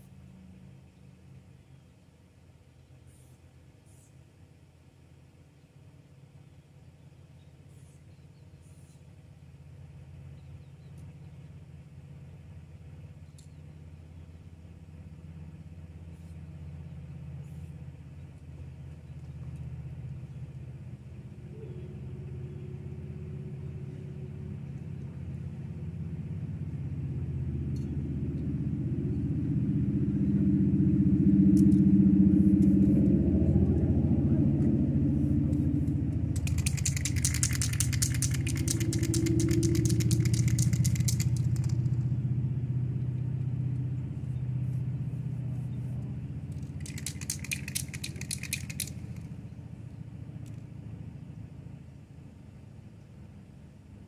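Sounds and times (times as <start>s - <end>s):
passing vehicle rumble: 13.9s - 54.0s.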